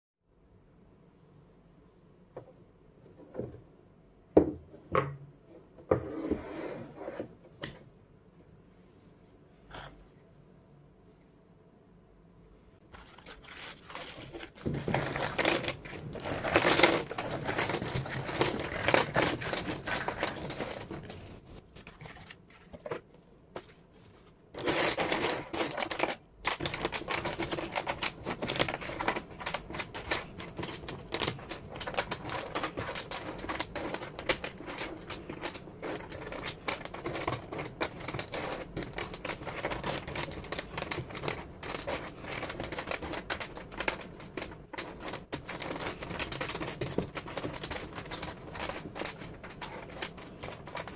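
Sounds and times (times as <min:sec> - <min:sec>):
tissue paper rustling: 0:12.9 - 0:22.2, 0:23.9 - 0:37.0
wooden jigsaw pieces clicking: 0:13.9 - 0:21.2, 0:24.6 - 0:50.9.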